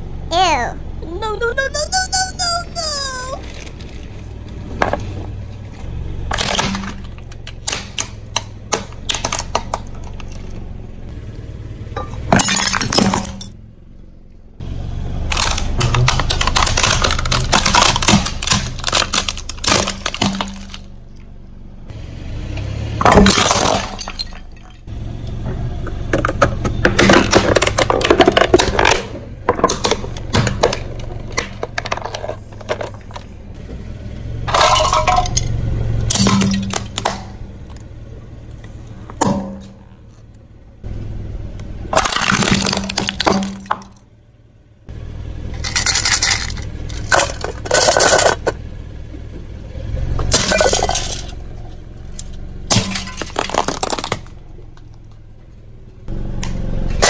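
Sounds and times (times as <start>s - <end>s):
tire crushing brittle objects: 3.3s - 21.9s, 22.5s - 57.0s.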